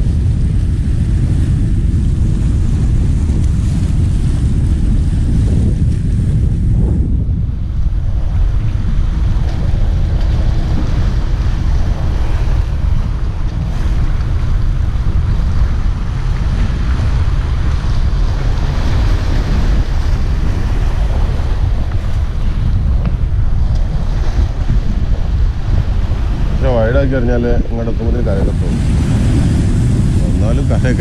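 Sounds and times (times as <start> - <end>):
wind buffeting microphone: 0.0 - 31.0
waves washing against rocks: 7.6 - 31.0.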